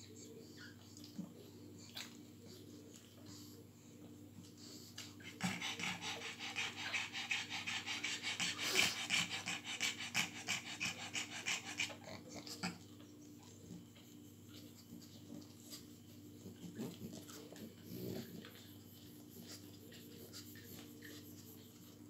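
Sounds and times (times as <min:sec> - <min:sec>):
dog panting hard: 0:04.4 - 0:22.0.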